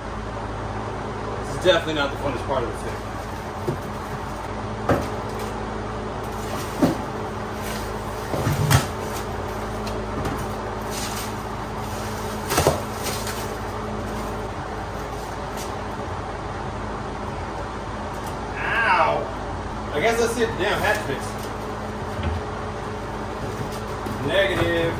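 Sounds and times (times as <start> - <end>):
steady low hum: 0.0 - 24.9
styrofoam crunching and scraping: 6.3 - 15.8.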